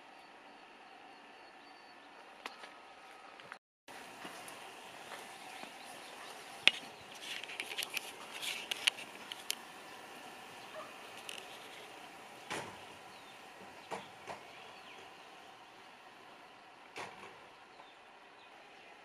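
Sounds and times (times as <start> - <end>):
handling noise on microphone: 6.3 - 9.7
small clicks and rustles: 6.3 - 9.7, 10.9 - 12.8.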